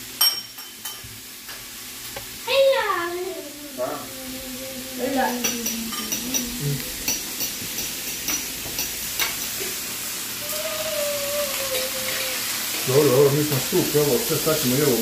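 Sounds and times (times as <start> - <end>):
beef sizzling on a grill: 0.0 - 15.0.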